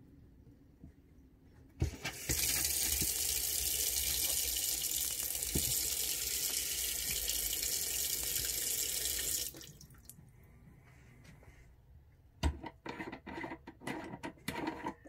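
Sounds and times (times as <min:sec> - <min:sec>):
tap running into steel sink: 0:05.4 - 0:05.9.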